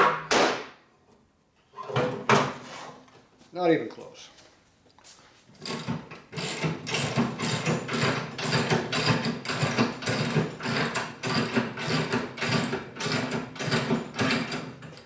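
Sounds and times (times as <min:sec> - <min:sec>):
jack clanking and ratcheting: 0:05.6 - 0:15.0.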